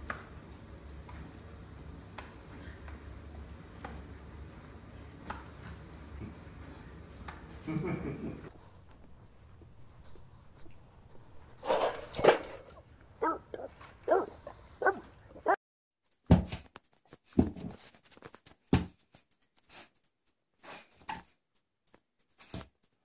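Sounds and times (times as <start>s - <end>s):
dog barking: 13.2s - 15.6s.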